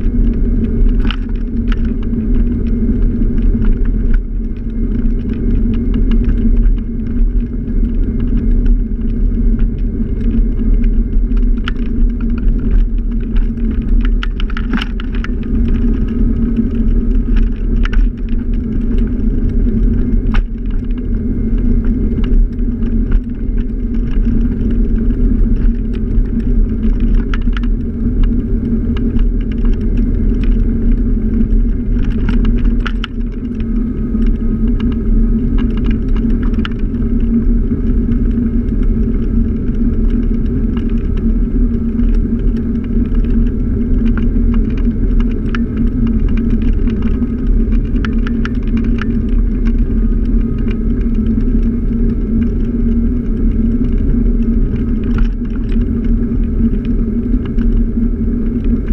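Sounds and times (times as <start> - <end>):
road rumble: 0.0 - 58.9
scooter motor running: 0.0 - 58.9
wind: 0.0 - 58.9.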